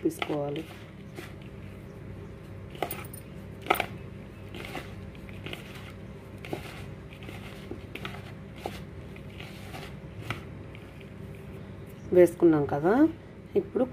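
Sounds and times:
hand rubbing flour in a bowl: 0.0 - 2.9, 4.3 - 11.6
low steady hum: 0.0 - 13.9
bangles clinking: 2.7 - 4.0.

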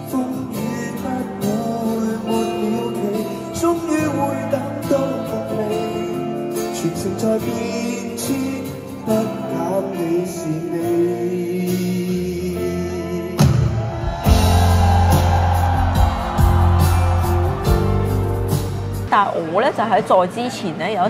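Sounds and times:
person singing lead vocal: 0.0 - 17.0
pop-rock band music: 0.0 - 19.2
heavy bass line: 13.9 - 19.1.

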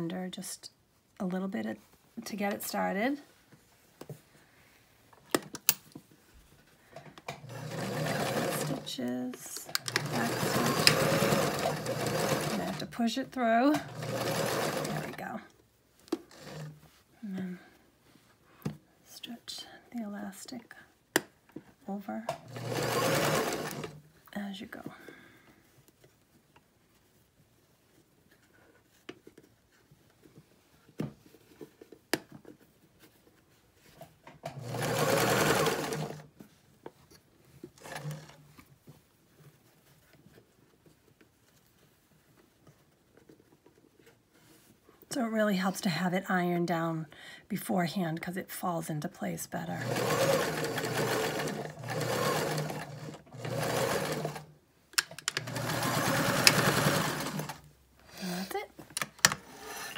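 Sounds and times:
sewing machine stitching: 7.3 - 9.0, 9.6 - 13.0, 13.6 - 15.3, 16.3 - 16.8, 22.3 - 24.0, 34.4 - 36.3, 37.8 - 38.4, 49.7 - 57.7.

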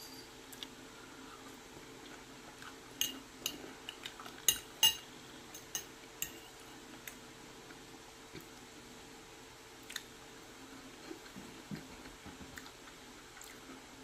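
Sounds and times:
faint steady hum: 0.0 - 14.0
metal spoon clinking on plate: 3.0 - 6.6.

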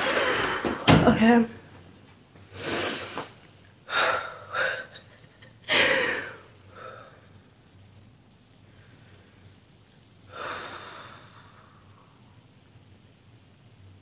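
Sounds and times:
woman breathing and sniffling: 2.4 - 7.3, 10.3 - 12.0.

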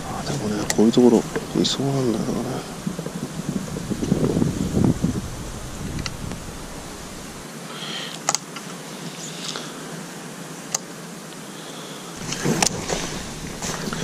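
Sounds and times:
brush and twigs rustling: 0.0 - 7.4, 12.2 - 14.0
steady outdoor hiss: 0.0 - 14.0.

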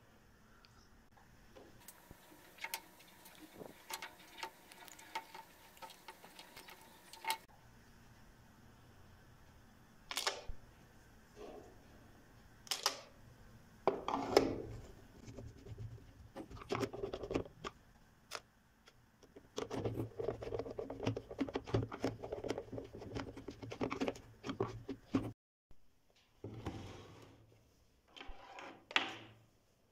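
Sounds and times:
scratching and rubbing on plastic: 2.0 - 7.5, 14.8 - 17.7, 19.4 - 25.4.

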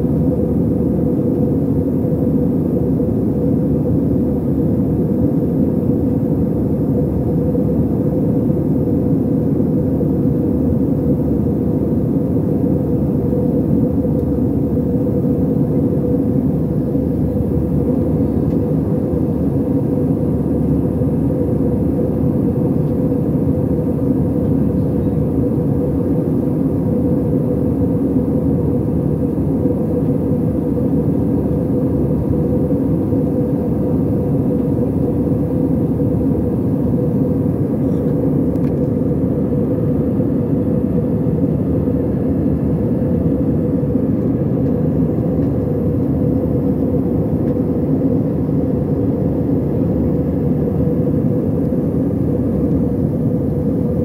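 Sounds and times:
airliner cabin engine rumble: 0.0 - 54.0.

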